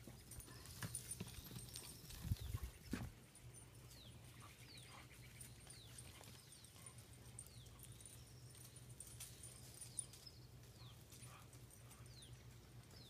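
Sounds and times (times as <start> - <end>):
hooves thudding on dirt: 0.0 - 3.3.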